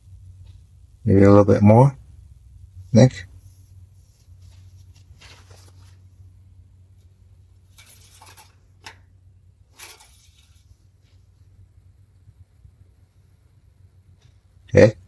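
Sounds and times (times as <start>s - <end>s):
low steady hum: 0.0s - 15.0s
handling rustles and scrapes: 3.3s - 6.3s, 6.9s - 9.0s, 9.7s - 11.5s.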